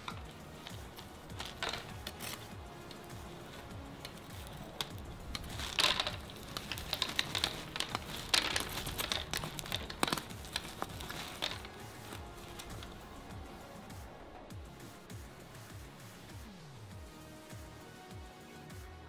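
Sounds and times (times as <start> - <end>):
molten lava crackling and popping: 0.0 - 14.6.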